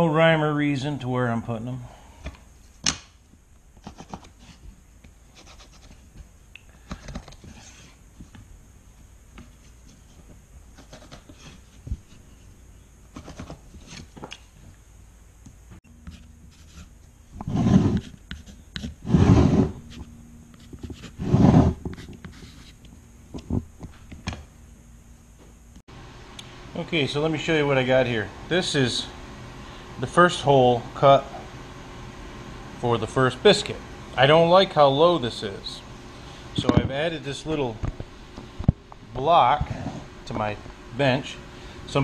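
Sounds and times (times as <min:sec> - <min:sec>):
faint steady hum: 0:00.0 - 0:42.0
loud rubbing scrapes: 0:16.5 - 0:18.2, 0:19.0 - 0:19.9, 0:20.9 - 0:22.8.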